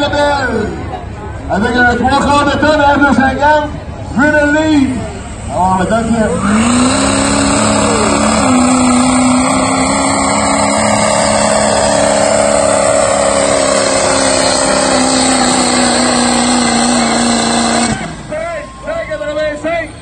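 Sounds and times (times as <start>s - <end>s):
diesel truck engine at full throttle: 0.0s - 20.0s.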